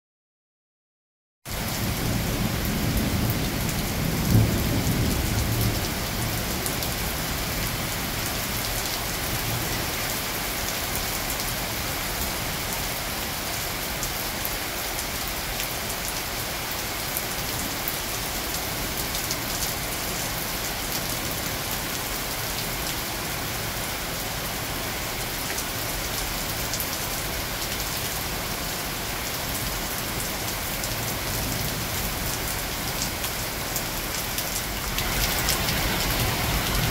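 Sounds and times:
rain falling on foliage: 0:01.5 - 0:36.9
thunder rumbling: 0:35.0 - 0:36.9.

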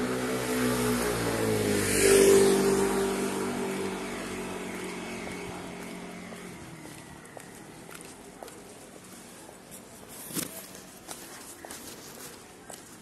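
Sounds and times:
vehicle driving past: 0:00.0 - 0:07.8.

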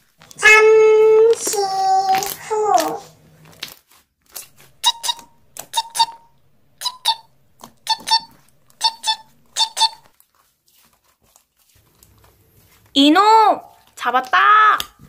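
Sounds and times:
cartoon mouse squeaks: 0:04.8 - 0:10.0.

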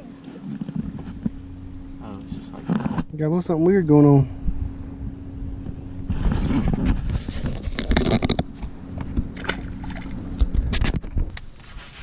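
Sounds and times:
steady low hum: 0:00.0 - 0:12.0
wind rumble on microphone: 0:04.2 - 0:11.5
fish splashing into water: 0:09.4 - 0:10.4.

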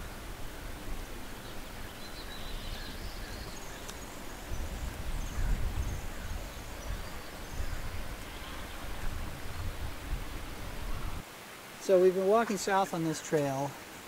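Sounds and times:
wind buffeting microphone: 0:00.0 - 0:11.2.

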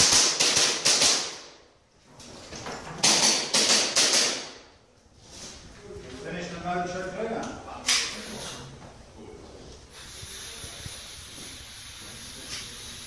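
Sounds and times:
airsoft pistol firing rapidly: 0:00.0 - 0:01.5.

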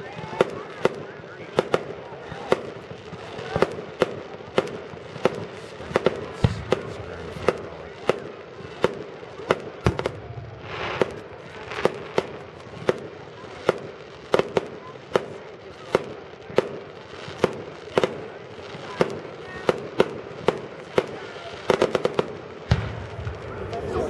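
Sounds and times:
fireworks bursting: 0:00.0 - 0:24.0.

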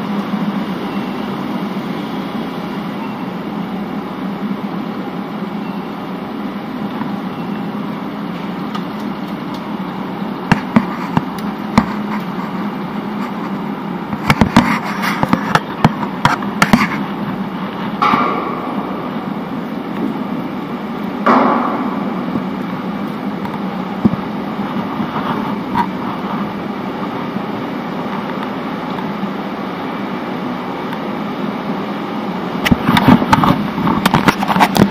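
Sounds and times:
low hum: 0:00.0 - 0:34.9
sharp clacks and metallic knocks: 0:10.5 - 0:12.4, 0:17.8 - 0:19.1, 0:21.2 - 0:22.5.

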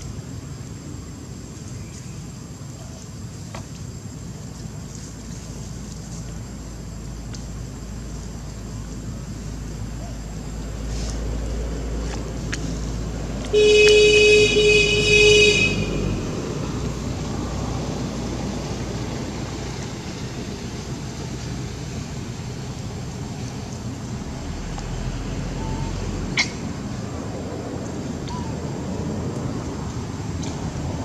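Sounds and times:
low traffic rumble: 0:00.0 - 0:31.0
vehicle horn toots: 0:13.5 - 0:16.2.

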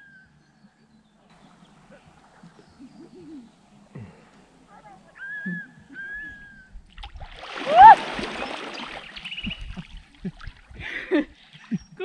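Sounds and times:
swimmer splashing in water: 0:07.4 - 0:09.2
person yelping: 0:07.7 - 0:08.0.

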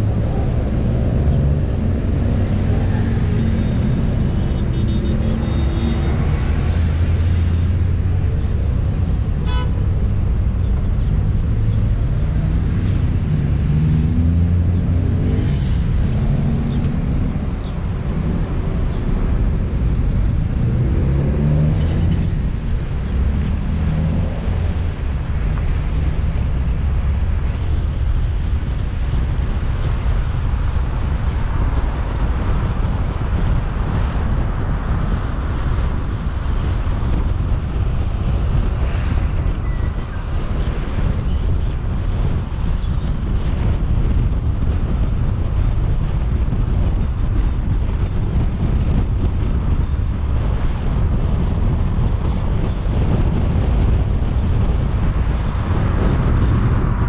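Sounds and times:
car engine: 0:00.0 - 0:41.5
road rumble: 0:00.0 - 0:57.0
tyre and wind noise: 0:00.0 - 0:57.0.

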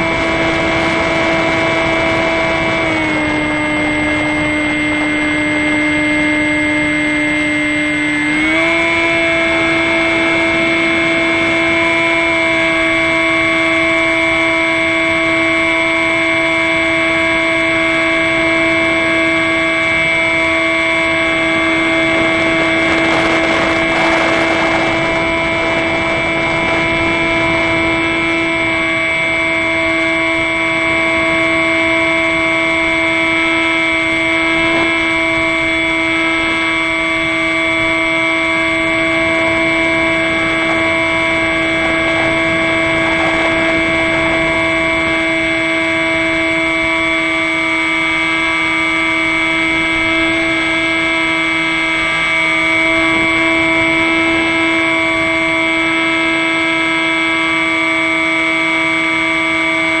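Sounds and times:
electric motor and propeller whining: 0:00.0 - 1:00.0
wind rushing: 0:36.6 - 0:46.7.

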